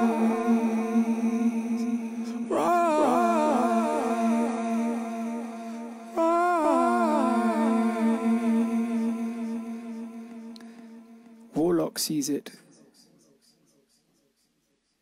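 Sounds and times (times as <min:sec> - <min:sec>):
low drone: 0:00.0 - 0:11.6
hummed vocal phrase with echo: 0:00.0 - 0:11.8.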